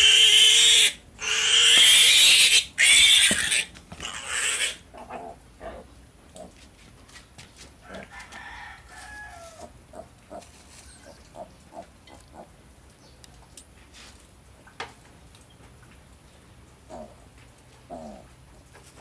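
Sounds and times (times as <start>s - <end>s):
piglets grunting: 0.0s - 6.6s, 16.9s - 17.2s, 17.9s - 18.3s.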